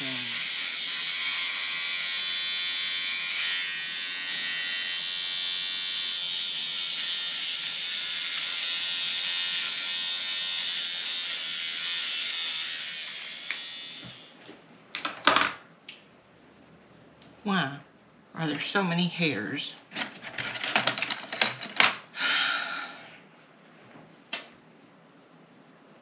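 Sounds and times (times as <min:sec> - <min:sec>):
electric trimmer buzzing: 0:00.0 - 0:14.4.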